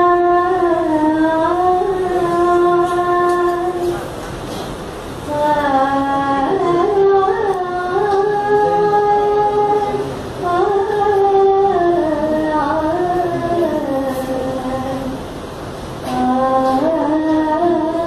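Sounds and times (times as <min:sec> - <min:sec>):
woman singing long held notes: 0:05.3 - 0:15.2, 0:16.0 - 0:18.0.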